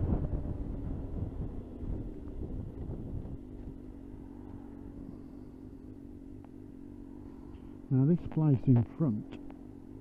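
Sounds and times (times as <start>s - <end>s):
wind rush on microphone: 0.0s - 5.0s
motorcycle engine: 0.0s - 10.0s.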